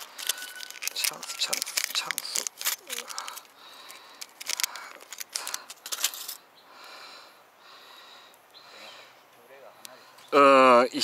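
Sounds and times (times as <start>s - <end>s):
fumbling with packet: 0.0s - 6.4s
packet rustling: 0.0s - 6.4s.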